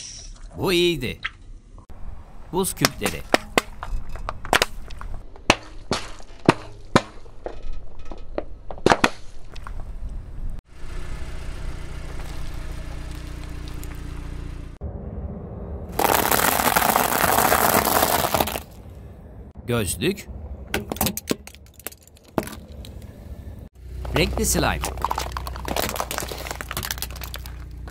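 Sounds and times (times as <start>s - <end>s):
ice cubes cracking under car tyre: 16.0s - 18.8s, 24.8s - 27.9s.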